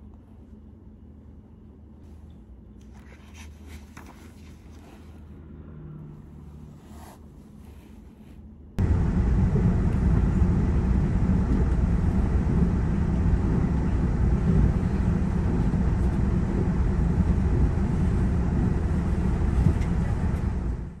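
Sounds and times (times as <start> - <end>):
train running inside carriage: 8.8 - 21.0.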